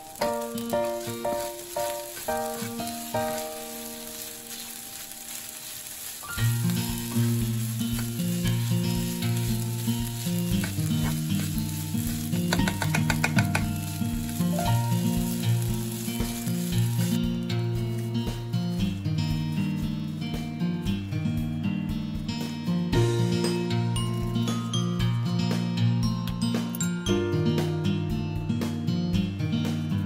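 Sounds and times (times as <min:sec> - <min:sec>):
rice sizzling in a frying pan: 0:00.0 - 0:21.8
background music with held notes: 0:00.0 - 0:30.0.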